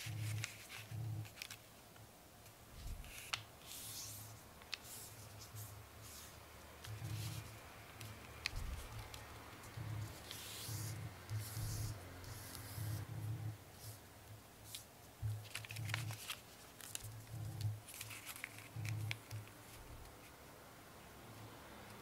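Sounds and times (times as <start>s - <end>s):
paper rustling: 0.0s - 1.7s, 2.8s - 13.0s, 14.6s - 20.3s
paper crinkling: 0.0s - 1.8s, 14.6s - 20.3s.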